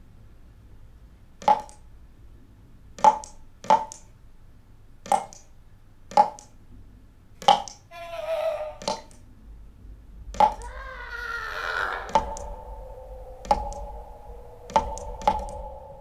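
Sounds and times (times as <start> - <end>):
water dripping from tap: 10.3 - 10.7
wavering high-pitched tone: 10.6 - 16.0.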